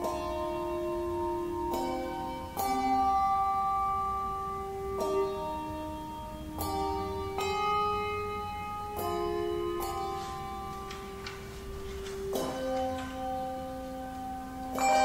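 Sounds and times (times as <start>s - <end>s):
handbell chords ringing: 12.4s - 15.0s.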